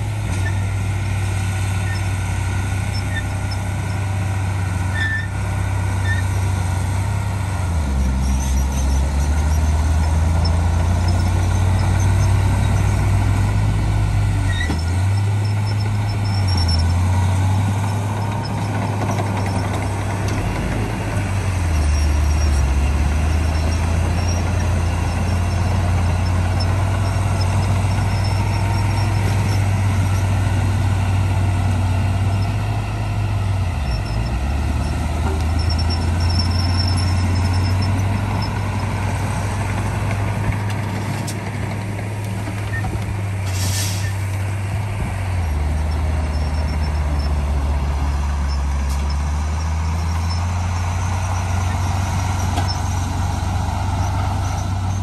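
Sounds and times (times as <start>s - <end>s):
heavy diesel engine running: 0.0s - 55.0s.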